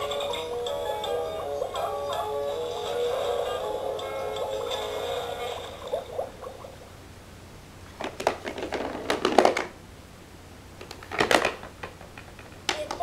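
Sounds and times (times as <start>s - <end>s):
plastic toy rattling down slide: 8.0s - 9.8s, 10.9s - 12.6s
plastic figures clicking: 10.8s - 13.0s.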